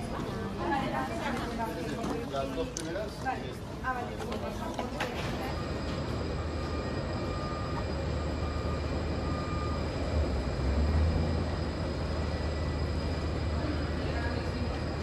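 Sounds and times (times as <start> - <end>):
aircraft and ground equipment rumble: 0.0 - 15.0
faint thin whine: 4.5 - 15.0.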